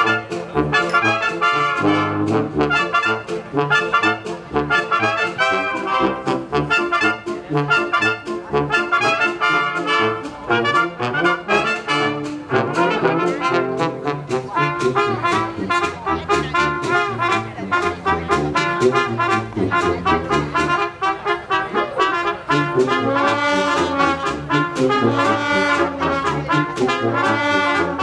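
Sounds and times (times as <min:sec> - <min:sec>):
brass: 0:00.0 - 0:28.0
symphony orchestra playing: 0:00.0 - 0:28.0.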